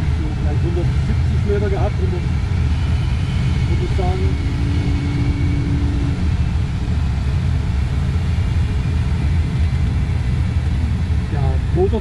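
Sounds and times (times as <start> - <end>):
rushing airflow rumble: 0.0 - 12.0
faint steady tone: 2.8 - 6.9.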